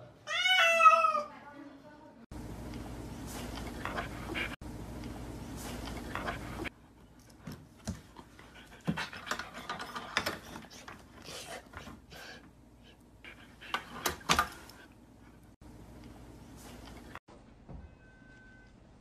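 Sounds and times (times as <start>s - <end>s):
dog panting: 3.4s - 4.6s, 8.0s - 15.0s.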